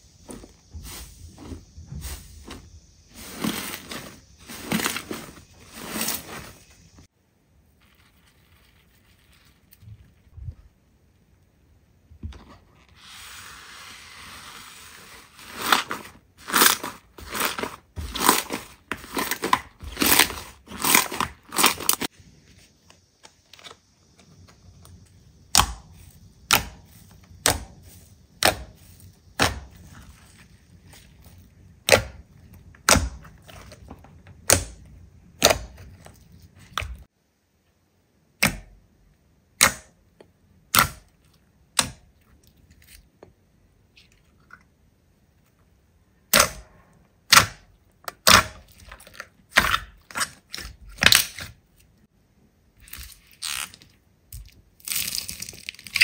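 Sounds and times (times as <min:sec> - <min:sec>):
steady hiss: 0:00.0 - 0:10.4.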